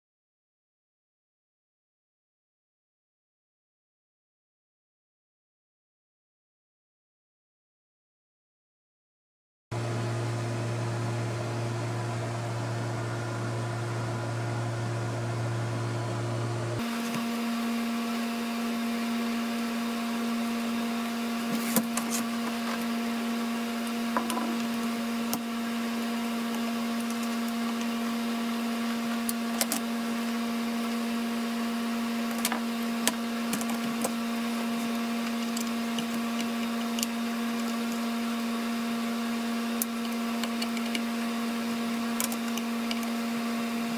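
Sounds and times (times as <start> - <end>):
machine hum: 9.7 - 43.9.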